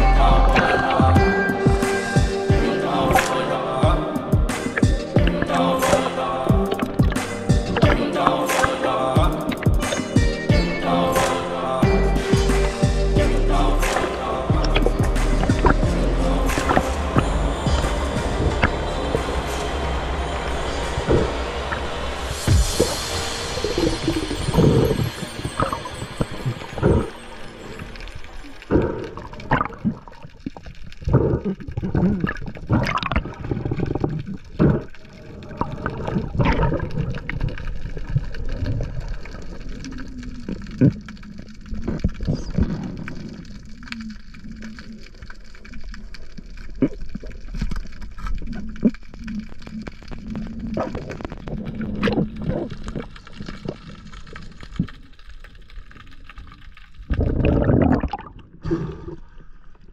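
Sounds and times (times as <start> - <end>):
sea water gurgling and sloshing: 0.5 - 11.5, 13.8 - 59.9.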